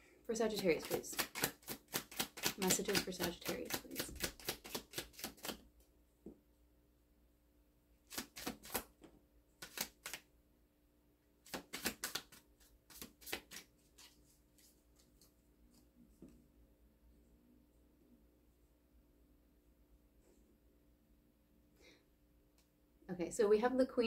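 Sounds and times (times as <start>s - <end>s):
cards being shuffled: 0.5s - 5.7s, 8.1s - 10.3s, 11.4s - 15.9s.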